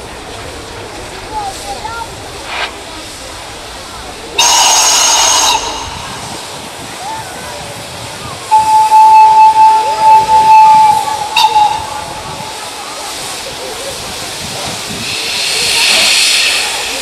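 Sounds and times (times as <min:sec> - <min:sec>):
steam hiss: 0:00.0 - 0:17.0
steam locomotive whistle: 0:04.4 - 0:06.8, 0:08.4 - 0:13.4.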